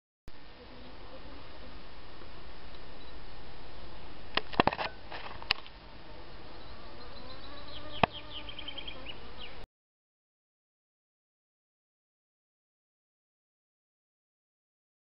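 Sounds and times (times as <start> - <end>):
insect buzzing: 5.9 - 9.6.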